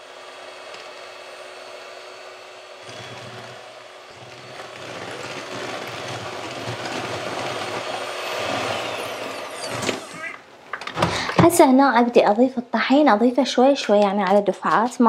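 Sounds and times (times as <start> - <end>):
electric hand mixer whirring: 0.0 - 11.4
beaters whisking batter: 2.9 - 10.4.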